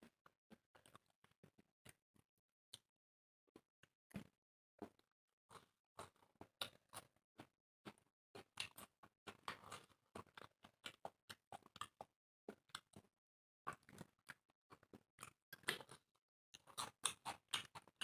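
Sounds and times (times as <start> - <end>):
chewing and mouth smacking: 7.8 - 13.1, 13.7 - 18.0.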